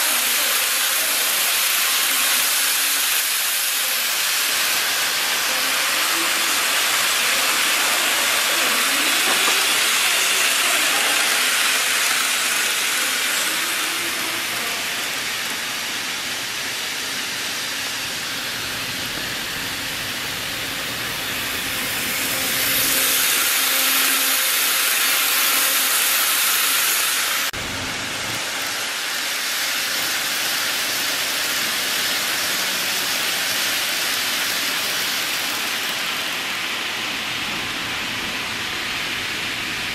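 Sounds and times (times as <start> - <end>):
model train wheels on rail: 0.0 - 39.9.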